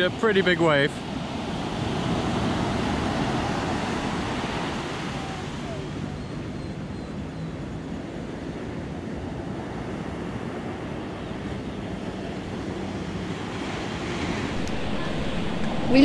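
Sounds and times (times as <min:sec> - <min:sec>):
surf breaking on sandy beach: 0:00.0 - 0:06.0.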